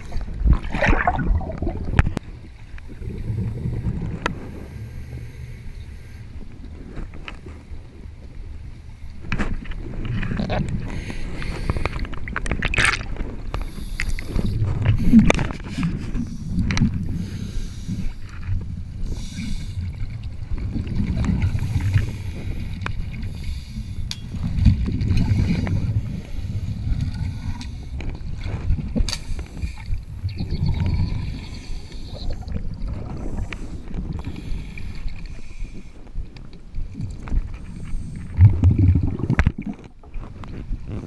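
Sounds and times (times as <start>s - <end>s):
bubbling of exhaled air: 0.0s - 2.2s, 2.9s - 5.5s, 10.1s - 22.8s, 24.4s - 29.0s, 29.6s - 34.9s, 37.0s - 41.0s
low underwater rumble: 0.0s - 11.1s, 11.7s - 41.0s.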